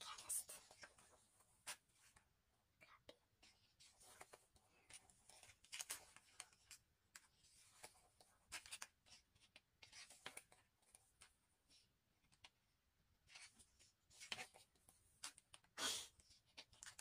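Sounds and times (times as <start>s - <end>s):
paper pages rustling: 3.6s - 12.6s, 13.2s - 17.0s
page turning: 3.9s - 10.6s.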